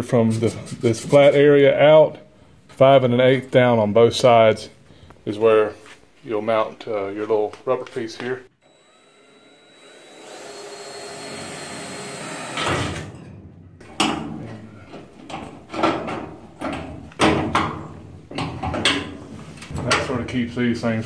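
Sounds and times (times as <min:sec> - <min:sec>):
cordless drill running: 0:08.6 - 0:13.0
metal knocks and scrapes: 0:12.8 - 0:20.2.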